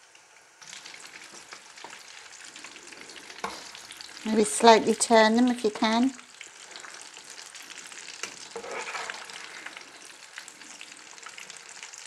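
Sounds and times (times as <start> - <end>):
oil sizzling while deep-frying: 0.0 - 12.0
metal spoon in pan: 8.1 - 9.7.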